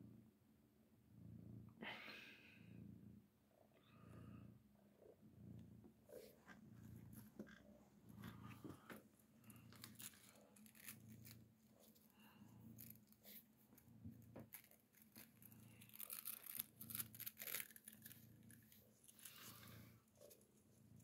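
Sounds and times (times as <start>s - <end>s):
cat purring: 0.0s - 21.0s
claws scratching fabric: 9.5s - 20.5s.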